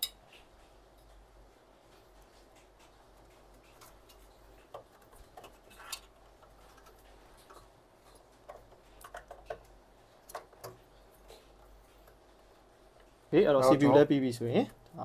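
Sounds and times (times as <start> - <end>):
small clicks and taps: 1.8 - 12.2.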